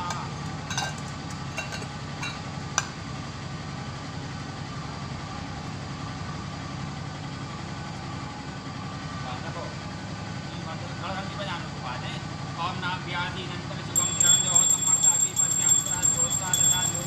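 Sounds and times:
steel vessels clinking: 0.1s - 2.4s, 14.0s - 17.0s.

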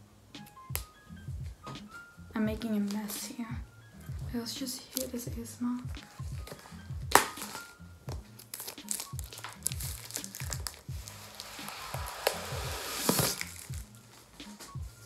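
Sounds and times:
background music with beat: 0.0s - 15.0s
shrink wrap crinkling: 2.6s - 3.5s, 4.6s - 15.0s.

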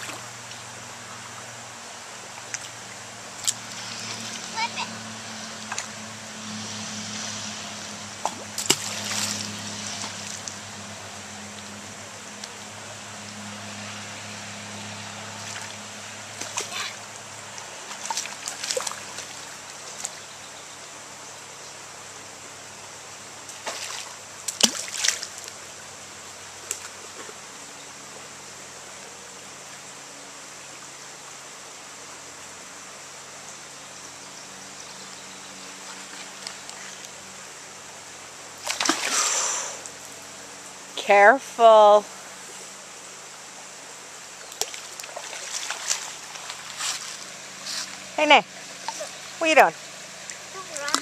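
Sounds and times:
creek trickling: 0.0s - 51.0s
splashes in water: 8.2s - 10.6s, 15.4s - 20.2s, 23.5s - 25.6s, 38.6s - 39.6s, 44.5s - 51.0s.

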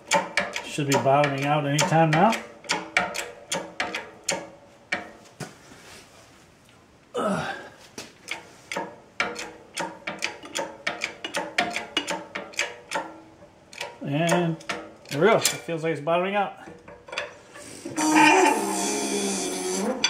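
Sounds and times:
metallic clicks of jack pump: 0.0s - 5.1s, 8.2s - 15.8s
sliding creak: 17.5s - 20.0s.

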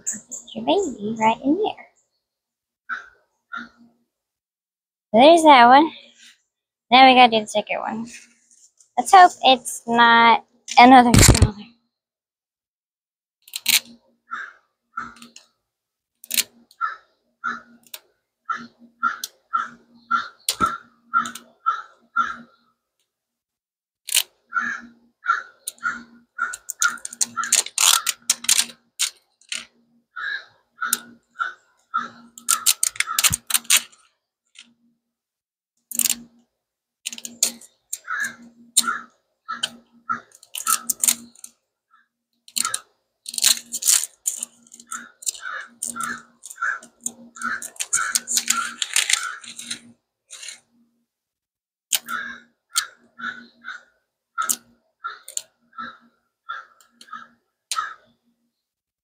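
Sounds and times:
fingers rubbing a wrapper: 26.4s - 29.7s, 40.3s - 41.5s, 42.5s - 50.6s
paper crackling and tearing: 47.5s - 50.6s.

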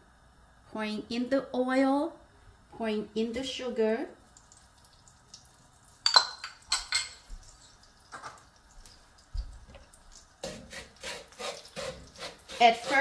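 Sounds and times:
bowl clinking: 6.0s - 8.4s
wooden spatula scraping wok: 10.4s - 13.0s.

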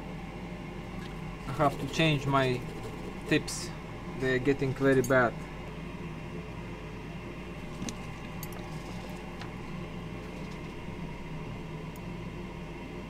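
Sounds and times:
electrical hum with fan hiss: 0.0s - 13.0s.

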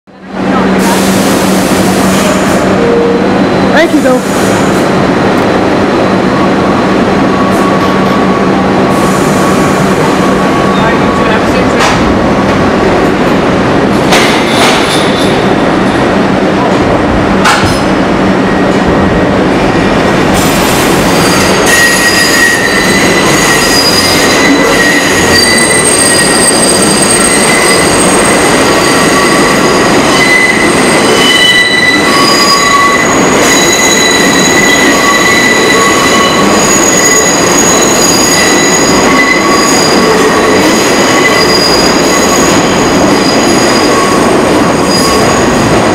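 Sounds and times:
subway train rumbling past: 0.1s - 45.9s
train wheels squealing: 20.4s - 45.7s.

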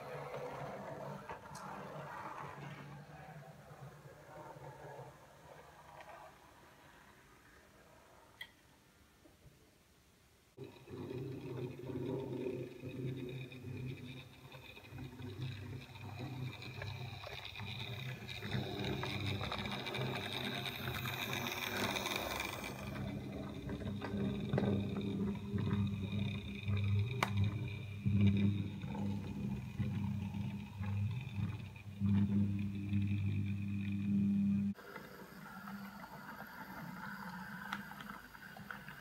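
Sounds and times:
model train motor hum: 10.6s - 39.0s.

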